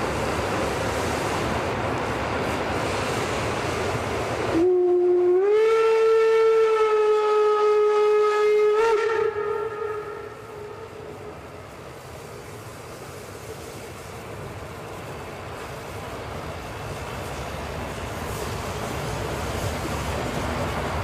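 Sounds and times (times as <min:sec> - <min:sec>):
steady rushing noise: 0:00.0 - 0:04.7, 0:09.4 - 0:21.0
steam locomotive whistle: 0:04.5 - 0:11.2.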